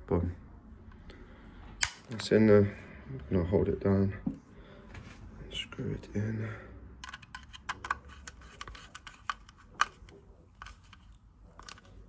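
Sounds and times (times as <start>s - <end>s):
screwdriver clicking and scraping: 7.0s - 12.0s.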